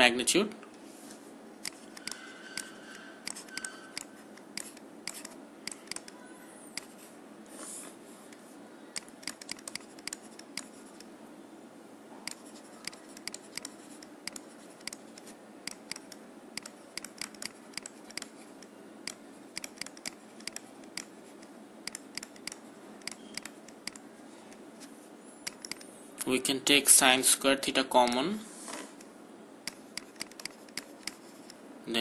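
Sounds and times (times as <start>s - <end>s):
low background hum: 0.0s - 32.0s
stylus tapping on pen tablet: 1.6s - 6.2s, 6.8s - 7.0s, 9.0s - 11.1s, 12.3s - 24.0s, 29.7s - 31.6s.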